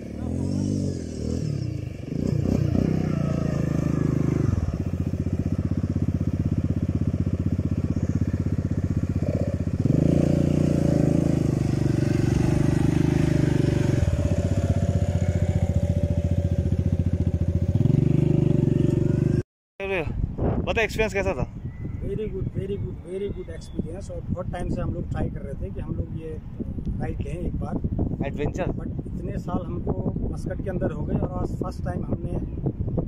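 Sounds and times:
quad bike engine revving: 0.0 - 19.4.

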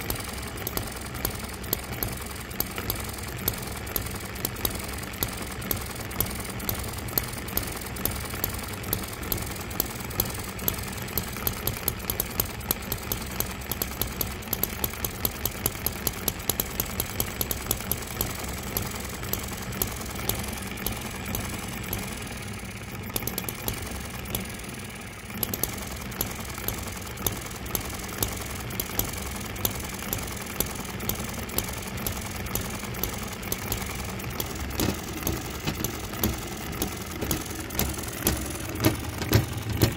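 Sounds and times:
model engine whirring: 0.0 - 39.9
engine firing clicks: 23.0 - 24.7, 25.4 - 39.9.

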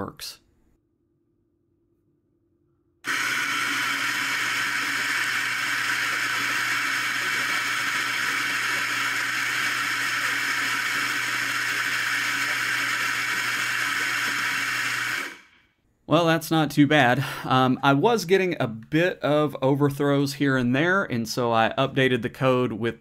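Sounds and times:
coffee grinder grinding beans: 3.1 - 15.5.

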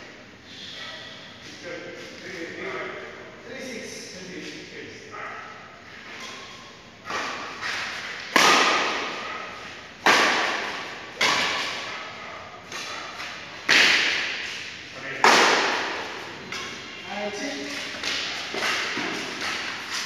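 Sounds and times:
rackets hitting shuttlecock: 7.1 - 12.0, 12.6 - 16.9, 17.8 - 20.0.

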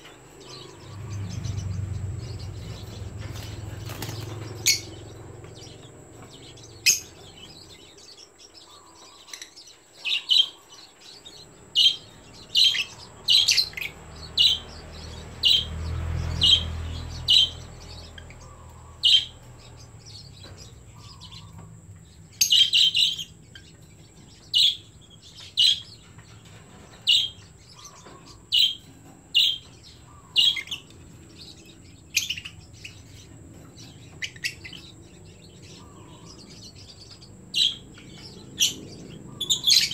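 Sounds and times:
lovebirds chirping: 0.0 - 39.9
low rumble: 0.5 - 7.9.

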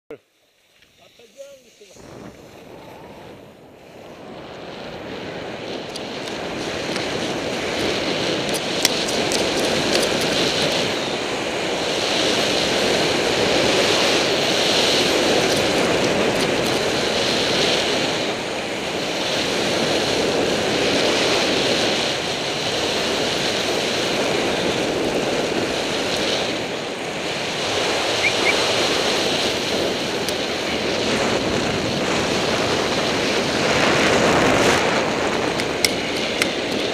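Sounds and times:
skis hissing on snow: 0.3 - 36.9
wind rushing over microphone: 1.0 - 36.9.

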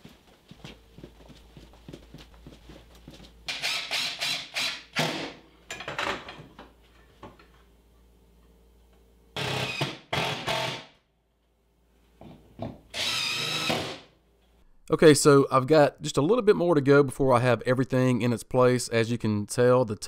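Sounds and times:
cordless drill driving screws: 3.5 - 5.3, 9.4 - 10.9, 12.9 - 14.0.

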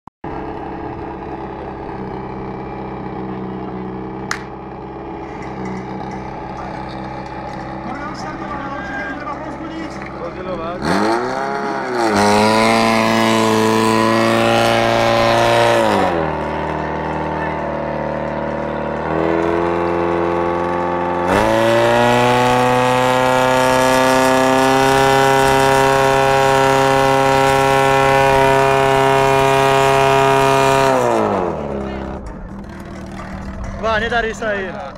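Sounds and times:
pump engine running: 0.2 - 34.9
sharp crack: 4.2 - 4.6.

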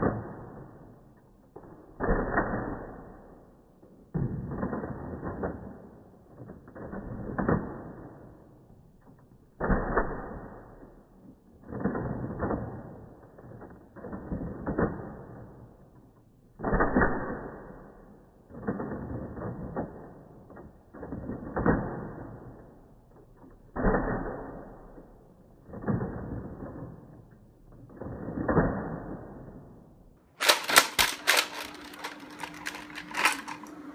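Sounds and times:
slowed dart blaster shots: 0.0 - 33.9
sharp plastic clicks: 30.4 - 33.9.

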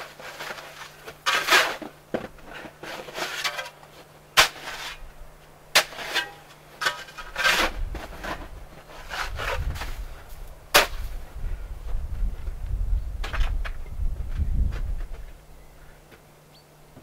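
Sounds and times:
shovel scraping snow: 0.0 - 5.1, 5.7 - 11.2.

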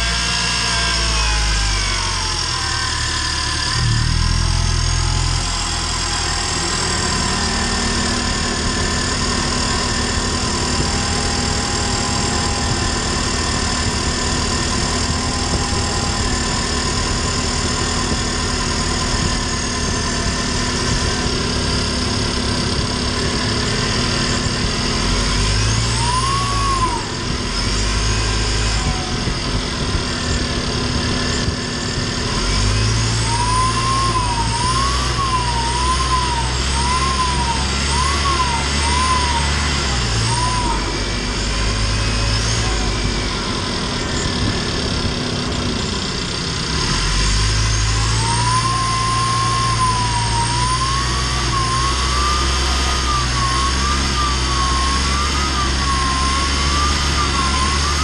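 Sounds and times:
emergency vehicle siren wailing: 0.0 - 58.0
road noise: 0.0 - 58.0
van engine running: 0.0 - 58.0
faint high whistle: 25.8 - 27.1, 33.1 - 39.5, 48.0 - 58.0.

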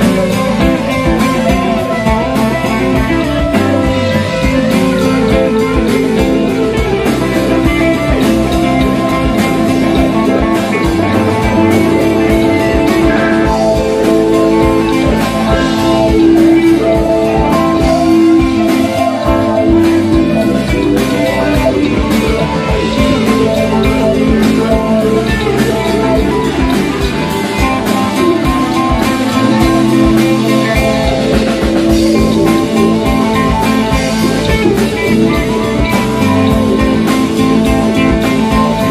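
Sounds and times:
bass: 0.0 - 38.9
drum kit steady beat: 0.0 - 38.9
electric guitar: 0.0 - 38.9
keyboards: 0.0 - 38.9.

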